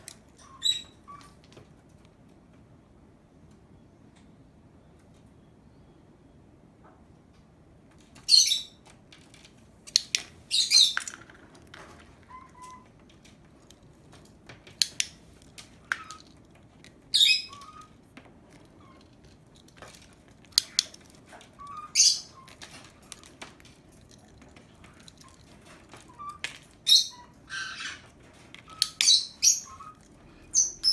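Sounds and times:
bird chirping: 0.4s - 1.4s, 8.2s - 8.9s, 10.0s - 13.0s, 14.7s - 19.2s, 19.8s - 30.9s.

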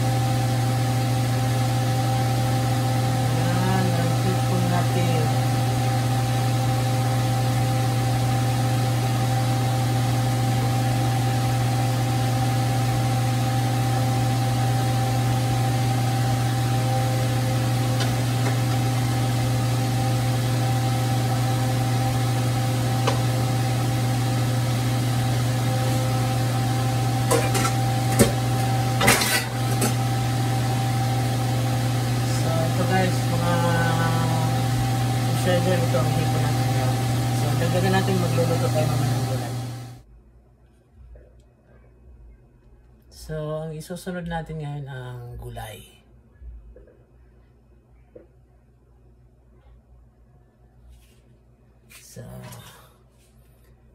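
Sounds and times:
electric motor hum: 0.0s - 40.0s
cookware knocking and clattering: 27.3s - 28.4s.

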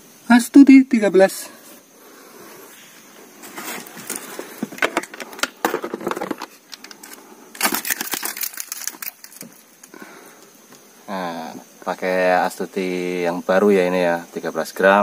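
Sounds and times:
fish flapping on wooden floor: 3.5s - 9.6s
knocks and rattles: 4.6s - 6.6s.

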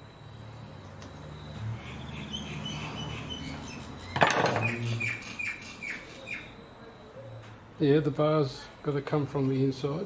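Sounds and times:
small birds chirping: 0.8s - 7.5s.

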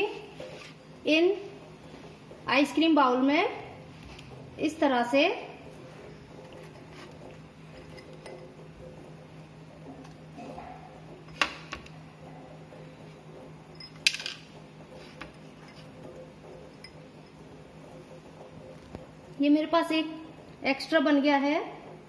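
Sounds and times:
steady low hum: 0.0s - 22.0s
glass bowls clinking: 6.5s - 8.6s, 13.7s - 14.4s, 15.5s - 17.4s.

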